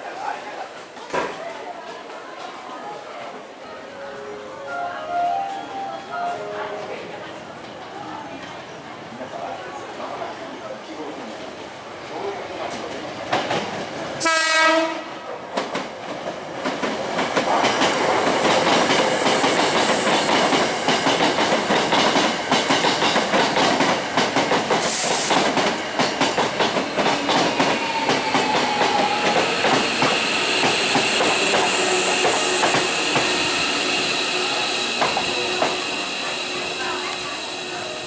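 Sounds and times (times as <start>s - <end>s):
train rumbling: 11.6s - 38.0s
train horn blast: 14.2s - 15.2s.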